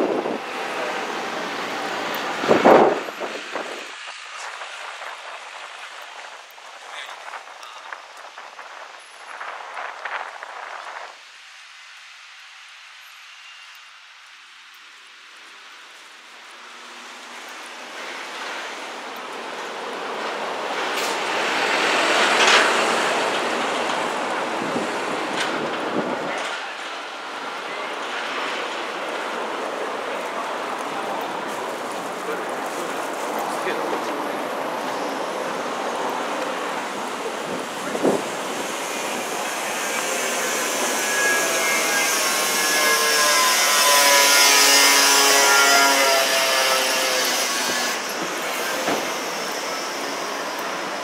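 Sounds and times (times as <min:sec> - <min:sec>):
traffic hiss of tyres and engines: 0:00.0 - 0:51.0
truck passing by: 0:16.8 - 0:51.0.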